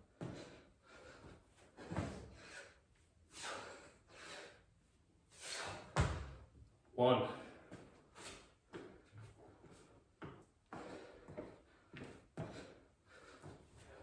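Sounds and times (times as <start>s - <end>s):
man breathing heavily: 0.0s - 6.4s, 7.2s - 14.0s.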